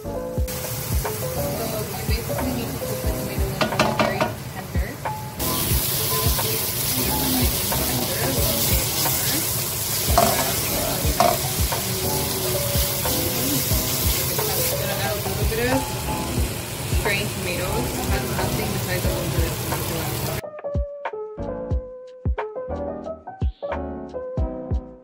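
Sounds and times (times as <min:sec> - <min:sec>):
light background music: 0:00.0 - 0:25.0
vegetables sizzling in a pan: 0:00.4 - 0:20.4
wooden spatula stirring in a pan: 0:05.7 - 0:15.2.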